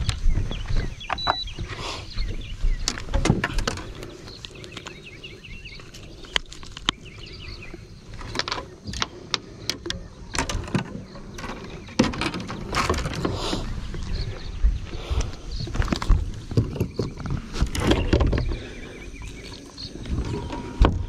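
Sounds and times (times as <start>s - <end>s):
bird chirps: 0.0s - 21.0s
steady low rumble: 12.6s - 21.0s.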